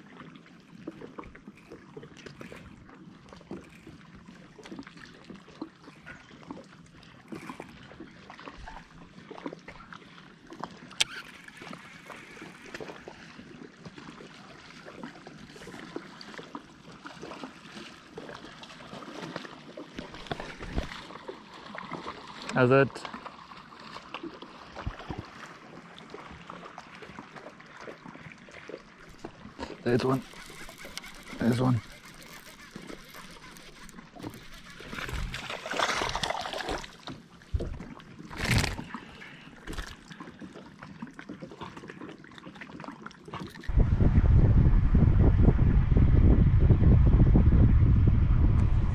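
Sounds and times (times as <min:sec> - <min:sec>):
water lapping and trickling: 0:00.0 - 0:43.8
water trickling: 0:27.8 - 0:40.4
fish splashing at the surface: 0:28.1 - 0:40.3.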